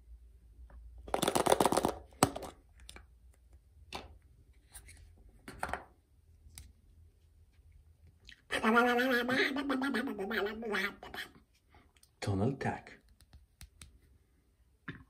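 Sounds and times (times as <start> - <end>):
plastic clatter: 1.1 - 2.6
plastic capsule snapping open: 1.1 - 3.0.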